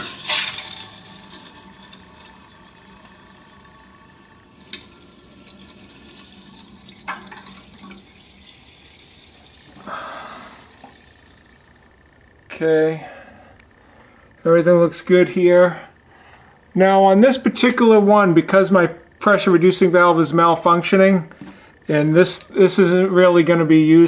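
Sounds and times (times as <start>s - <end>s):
water rushing through valve: 0.0s - 11.6s.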